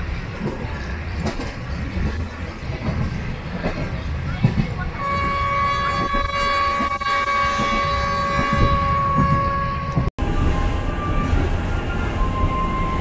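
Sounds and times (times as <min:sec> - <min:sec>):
train rumbling: 0:00.0 - 0:13.0
train horn blast: 0:05.0 - 0:10.1.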